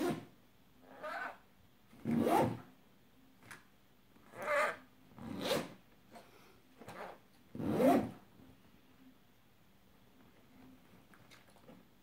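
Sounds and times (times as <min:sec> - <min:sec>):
zipper rasping: 0:02.0 - 0:02.6, 0:04.3 - 0:05.8, 0:06.8 - 0:08.2.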